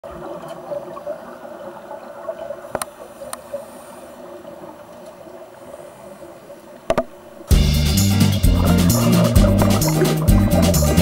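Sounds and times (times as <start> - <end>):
underwater watery hiss: 2.7 - 4.4.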